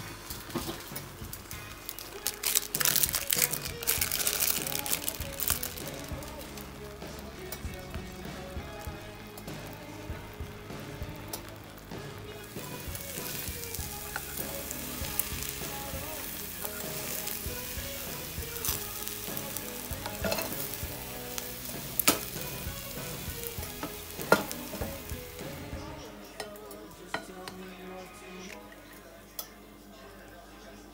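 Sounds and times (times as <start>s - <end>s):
food sizzling in a frying pan: 0.0s - 27.6s
spatula scraping pan: 12.5s - 25.7s.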